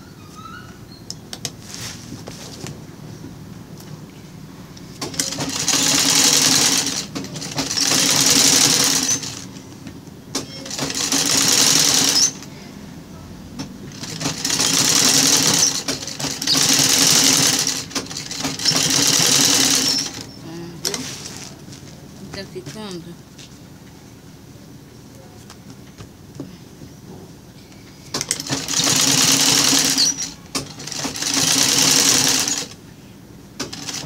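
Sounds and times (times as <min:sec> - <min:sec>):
sewing machine stitching: 0:05.0 - 0:09.5, 0:10.4 - 0:12.5, 0:13.9 - 0:21.2, 0:28.2 - 0:32.8, 0:33.6 - 0:34.0.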